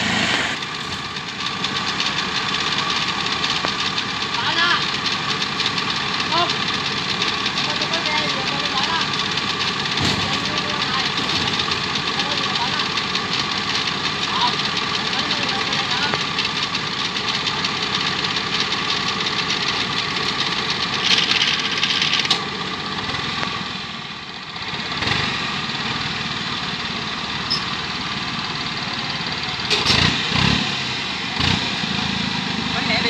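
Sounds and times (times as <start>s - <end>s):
short hiss: 0.0s - 0.6s
tracked carrier engine running: 0.0s - 33.0s.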